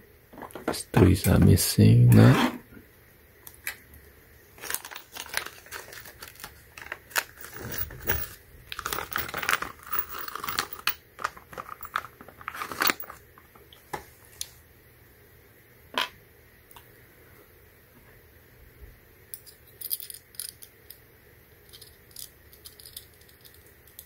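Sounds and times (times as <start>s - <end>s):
plastic bag crinkling: 4.6s - 13.2s.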